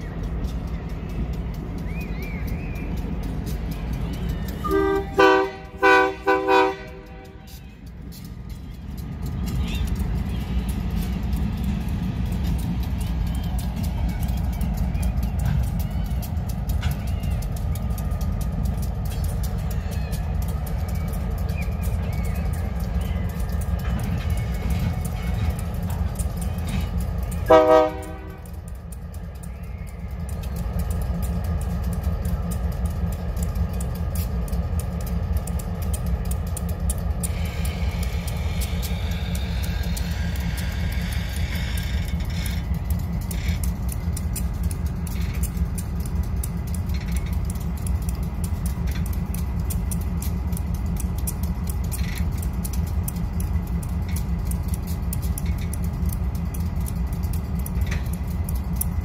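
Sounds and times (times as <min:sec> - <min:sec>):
diesel locomotive rumble: 0:00.0 - 0:59.0.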